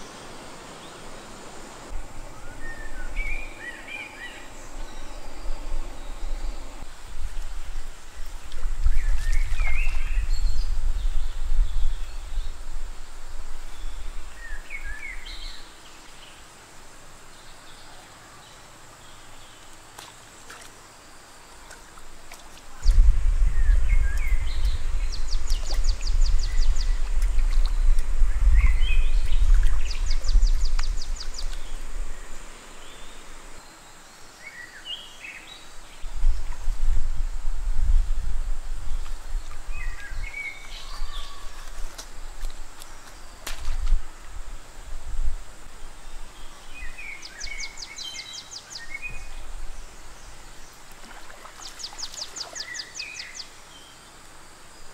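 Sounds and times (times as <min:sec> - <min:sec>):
bird calls and chirps: 0:02.2 - 0:06.8, 0:08.2 - 0:12.6, 0:39.4 - 0:42.0, 0:51.4 - 0:54.1.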